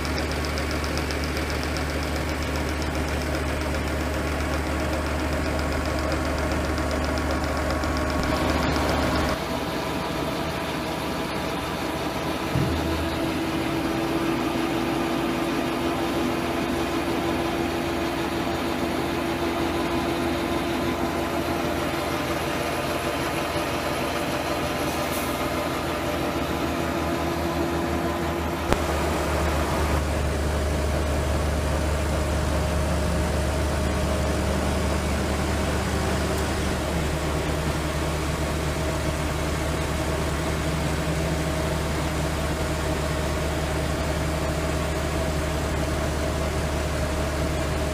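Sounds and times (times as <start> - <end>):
grain unloader mechanical drone: 0.0 - 47.9.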